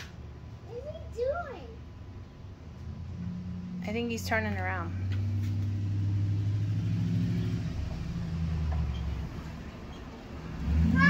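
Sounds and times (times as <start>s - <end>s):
pickup truck engine driving past: 2.8s - 11.0s.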